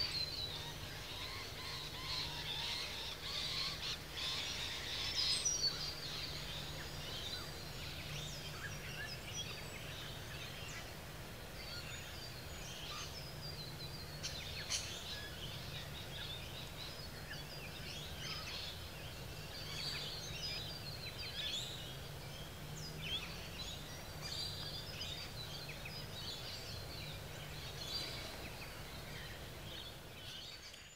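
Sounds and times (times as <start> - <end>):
birds chirping: 0.0 - 30.9.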